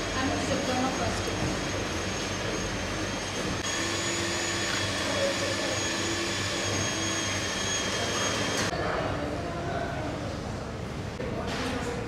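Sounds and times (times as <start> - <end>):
thin high whine: 0.0 - 8.7
ventilation fans whirring: 0.0 - 12.0.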